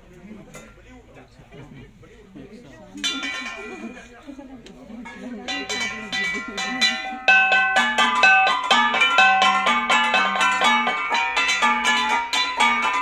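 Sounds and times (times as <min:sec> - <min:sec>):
bronze gongs beaten with sticks: 0:05.4 - 0:13.0.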